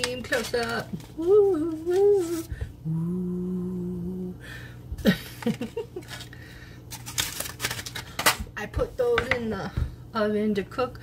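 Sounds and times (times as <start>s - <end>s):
woman humming: 0.9s - 4.6s
plastic package clicks: 7.0s - 8.4s.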